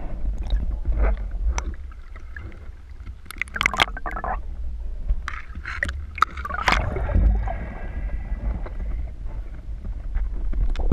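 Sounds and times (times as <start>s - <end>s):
underwater rumble of moving water: 0.0s - 10.9s
water splashing: 0.2s - 4.4s, 5.2s - 9.0s.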